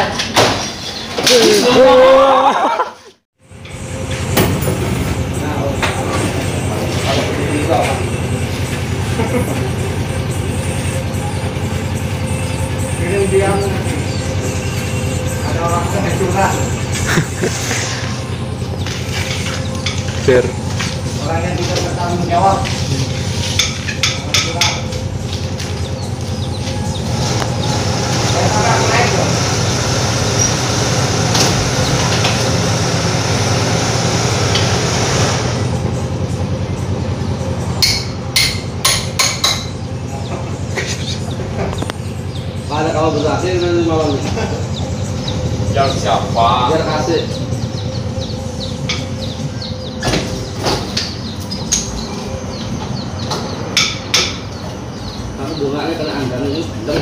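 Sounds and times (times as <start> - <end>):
power tool cutting concrete: 27.2 - 35.6.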